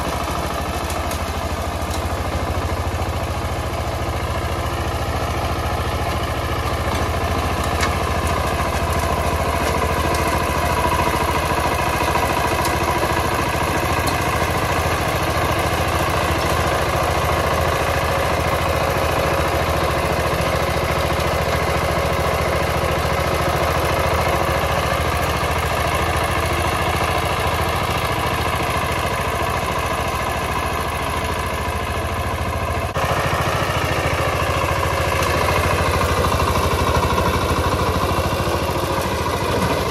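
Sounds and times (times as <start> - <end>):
rotary tines tilling soil: 0.0 - 22.8
diesel tiller engine running: 0.0 - 39.9.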